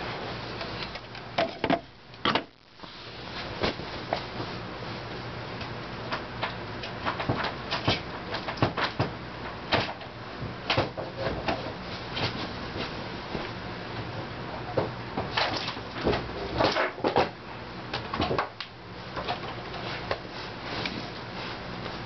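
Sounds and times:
hard drive low hum: 0.0s - 8.3s.

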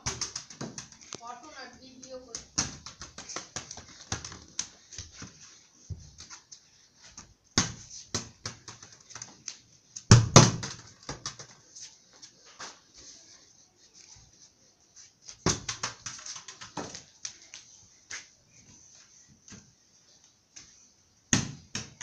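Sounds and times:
plastic ball bouncing on concrete: 0.0s - 1.2s, 2.3s - 5.2s, 7.2s - 11.6s, 15.4s - 17.1s
child's footsteps: 0.2s - 10.1s, 11.0s - 20.9s.

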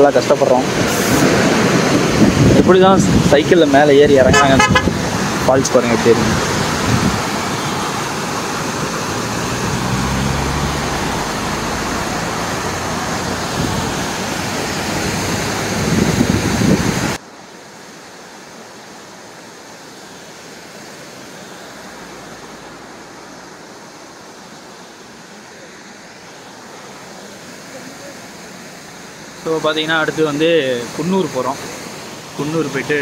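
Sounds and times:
waterfall rushing: 0.0s - 33.0s.

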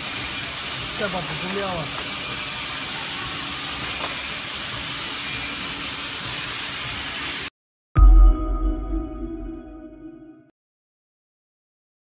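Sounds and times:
hissing machine noise: 0.0s - 7.5s.

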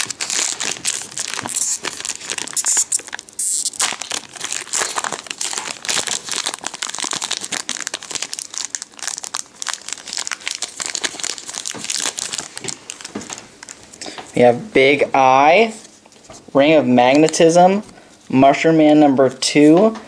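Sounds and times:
foil wrapper crinkling and tearing: 0.0s - 14.1s.

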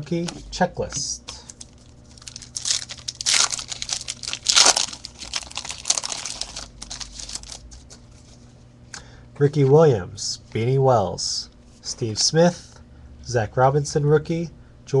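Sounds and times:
foil wrapper tearing and crinkling: 1.5s - 7.9s.

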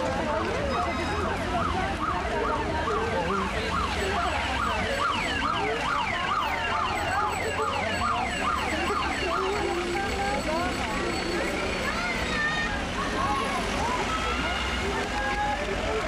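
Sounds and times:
siren yelping: 0.8s - 10.5s.

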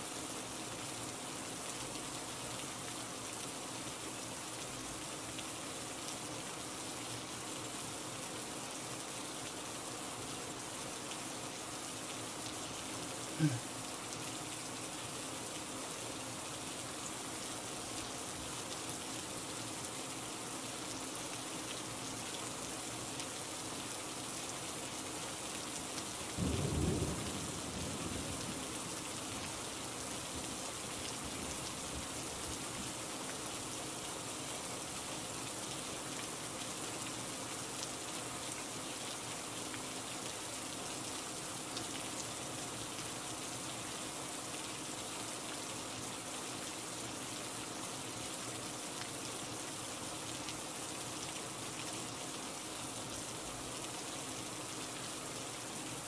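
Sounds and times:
steady rain falling: 0.0s - 56.0s
low rumble of thunder: 26.4s - 29.0s.

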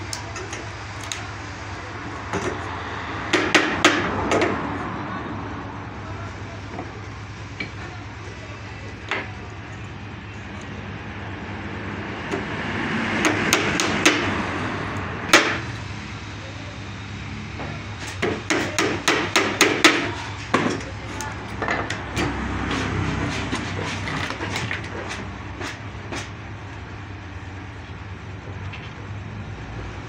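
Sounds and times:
hammer nailing wood: 3.3s - 4.6s, 13.2s - 14.4s, 15.3s - 15.7s, 18.1s - 26.3s.

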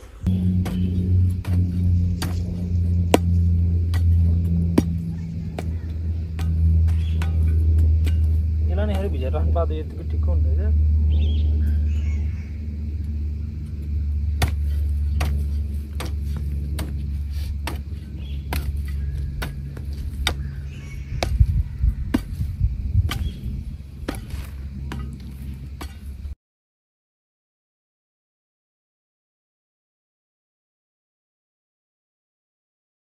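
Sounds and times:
heavy low rumble: 0.0s - 26.4s
sharp chopping strikes: 0.2s - 9.3s, 14.3s - 20.6s, 23.0s - 26.2s.

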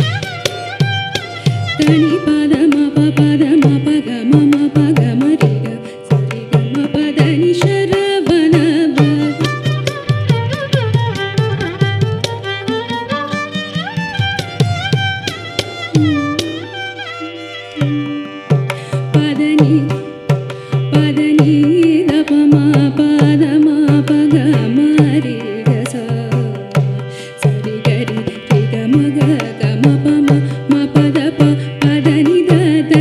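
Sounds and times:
hand drum strokes: 0.0s - 33.0s
violin melody: 0.0s - 33.0s
person singing: 1.8s - 9.5s, 16.0s - 26.6s.

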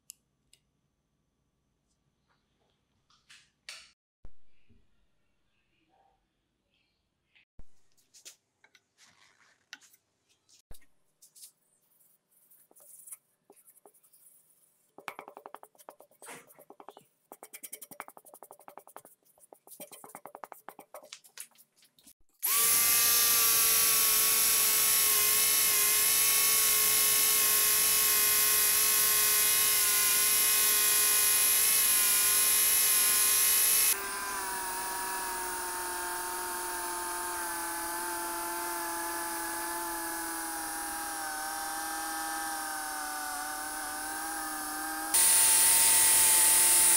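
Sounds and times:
felt pad rubbing knife blade: 12.5s - 21.6s
angle grinder buffing whine: 22.4s - 46.9s.

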